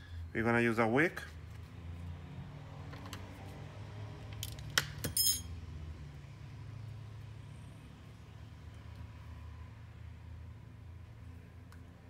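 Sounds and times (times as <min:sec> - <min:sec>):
metallic clink ringing: 0:05.0 - 0:05.6.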